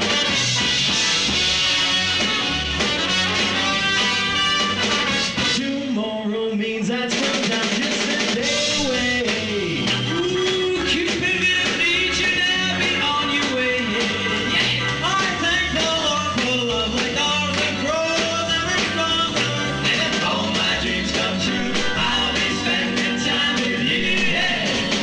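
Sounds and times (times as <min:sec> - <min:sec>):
rock and roll band playing: 0:00.0 - 0:25.0
man singing into microphone: 0:05.5 - 0:25.0.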